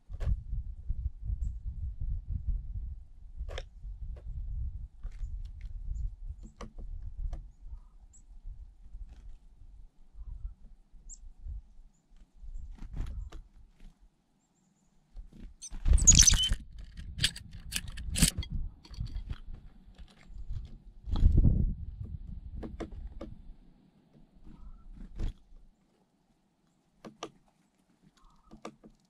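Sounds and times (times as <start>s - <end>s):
bird chirps and clicks: 15.6s - 19.2s, 28.2s - 29.0s.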